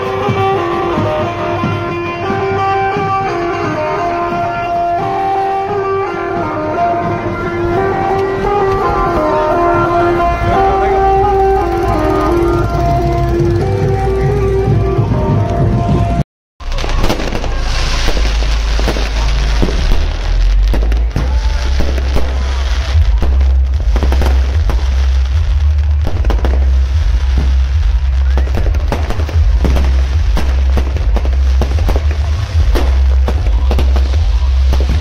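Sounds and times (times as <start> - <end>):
fireworks cracking and banging: 0.0 - 14.6, 16.6 - 35.0
crowd noise: 0.0 - 35.0
music: 0.0 - 35.0
deep rumble: 7.6 - 35.0.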